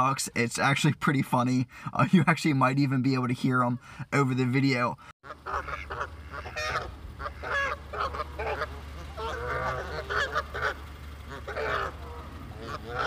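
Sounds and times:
geese honking and squawking: 5.2 - 13.0.

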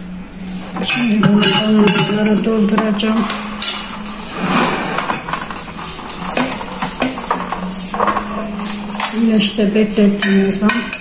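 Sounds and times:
low hum: 0.0 - 6.1
ladle and jars clinking on pot: 0.8 - 2.4
ladle scraping pot: 0.8 - 2.6.

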